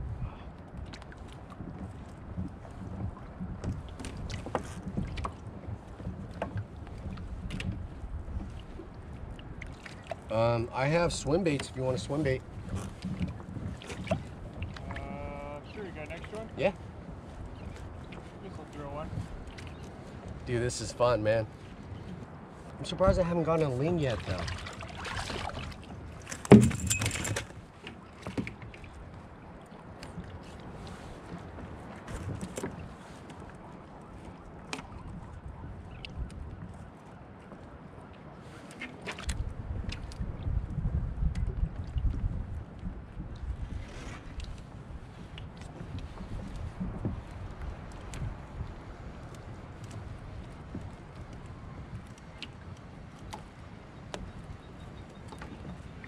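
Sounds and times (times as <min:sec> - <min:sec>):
wind buffeting microphone: 0:00.0 - 0:38.0, 0:39.2 - 0:56.0
water against kayak hull: 0:00.0 - 0:56.0
fish thumping on kayak: 0:26.3 - 0:27.6.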